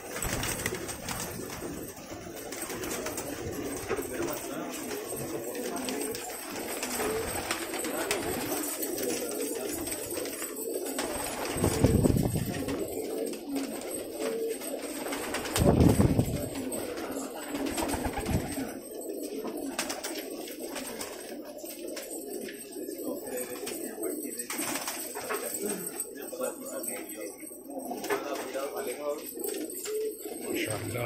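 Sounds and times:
wings flapping: 0.0s - 18.8s, 19.4s - 22.6s, 24.5s - 25.6s
pigeons cooing: 0.0s - 31.0s.

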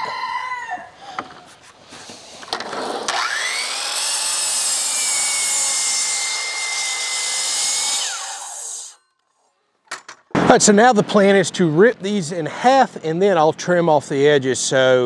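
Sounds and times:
saw blade cutting wood: 2.6s - 9.1s
miter saw motor whining: 2.9s - 9.0s.

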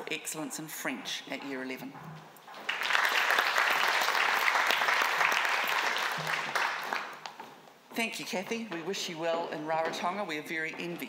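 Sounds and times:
audience applauding: 2.6s - 7.3s.

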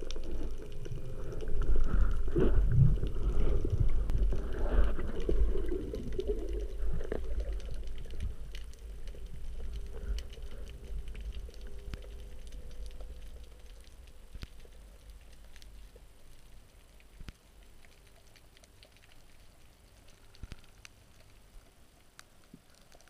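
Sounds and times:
underwater water rushing: 0.0s - 15.6s
faint clicks: 3.0s - 23.0s.

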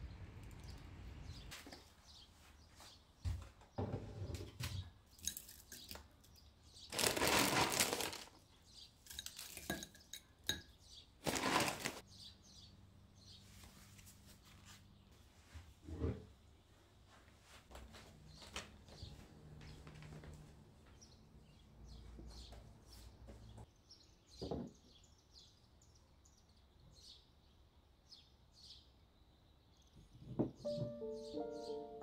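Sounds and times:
rustling noises: 6.9s - 8.4s, 11.2s - 12.0s, 13.3s - 15.8s
ceramic bowl and spoon clinking: 9.1s - 11.6s.

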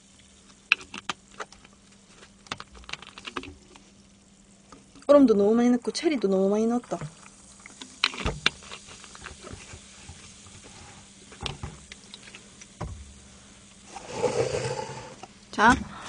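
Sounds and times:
cola fizzing over ice: 2.1s - 12.8s.

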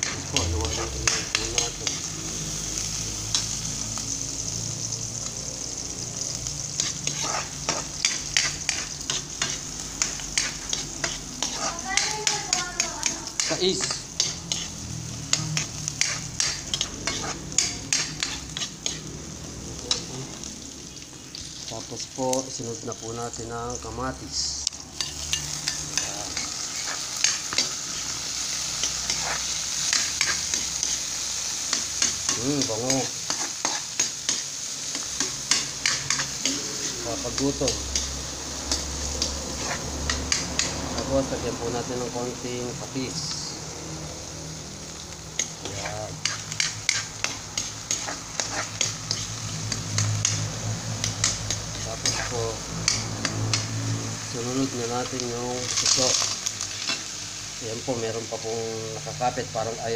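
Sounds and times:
food sizzling in hot oil: 0.0s - 59.9s
metal ladle scraping a wok: 6.8s - 12.1s, 13.4s - 19.1s, 25.0s - 31.0s, 31.6s - 40.7s, 45.4s - 53.8s.

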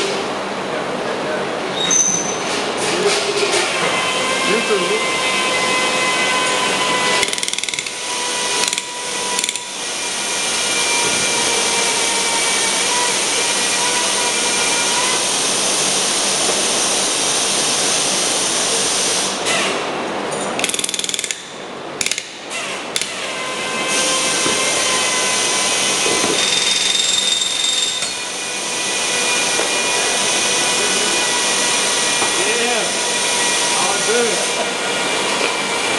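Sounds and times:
power drill drilling sheet metal: 3.8s - 15.8s, 23.0s - 34.6s.

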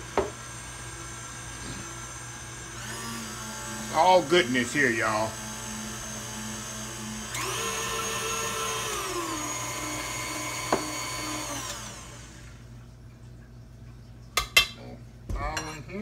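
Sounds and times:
stand mixer motor running: 0.0s - 12.7s.

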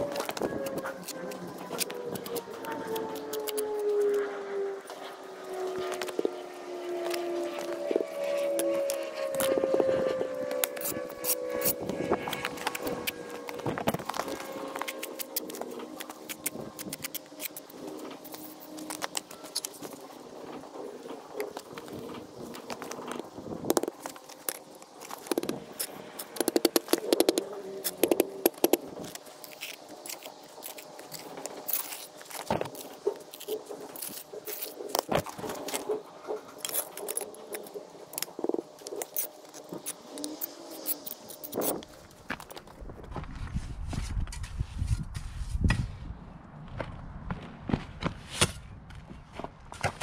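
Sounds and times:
trowel scraping on mortar and stone: 21.4s - 42.5s.

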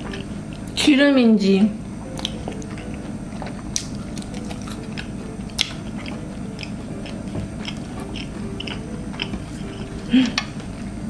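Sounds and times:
person chewing fried snacks: 2.2s - 11.0s.

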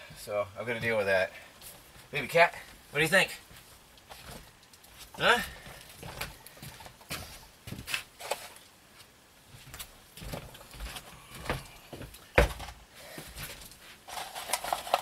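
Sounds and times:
knocks on wooden floor: 12.4s - 12.7s.

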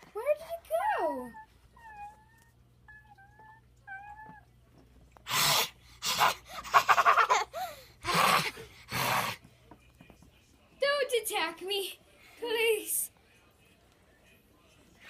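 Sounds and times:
dog whining: 1.1s - 4.6s.

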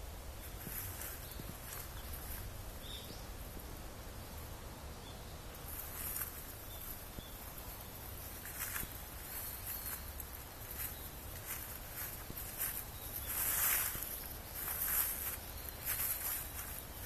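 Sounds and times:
footsteps crunching through dry leaves: 0.4s - 2.6s, 5.7s - 17.0s.

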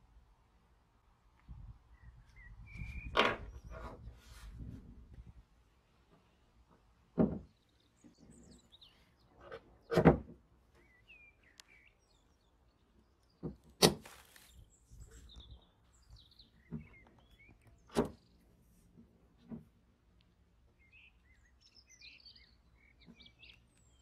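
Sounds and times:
faint birds chirping: 0.0s - 24.0s.

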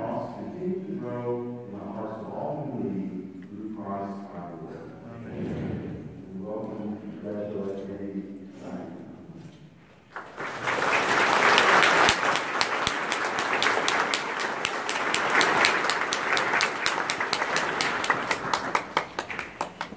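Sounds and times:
congregation applauding: 10.1s - 19.9s.

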